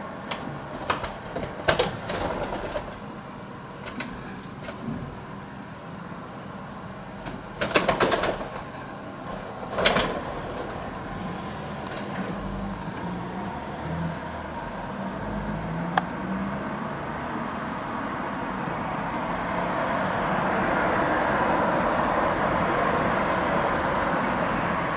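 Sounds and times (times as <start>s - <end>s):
pigeon wing claps: 0.2s - 3.0s, 7.2s - 10.8s.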